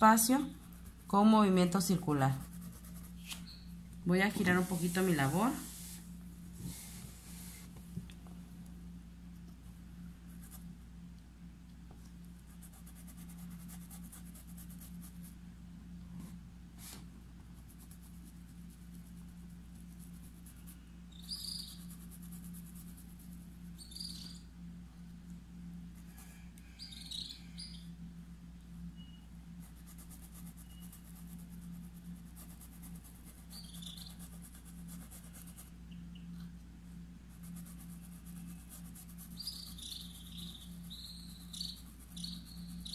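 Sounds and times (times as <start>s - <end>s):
steady low hum: 0.0s - 42.9s
paintbrush scratching on fabric: 2.2s - 3.4s, 4.4s - 7.7s, 12.5s - 15.3s, 21.5s - 23.6s, 29.6s - 35.8s, 37.3s - 42.9s.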